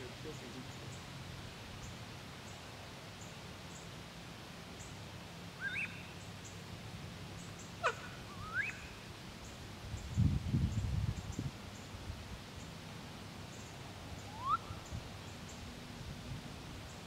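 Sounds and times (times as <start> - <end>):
ducks squealing: 7.8 - 8.7.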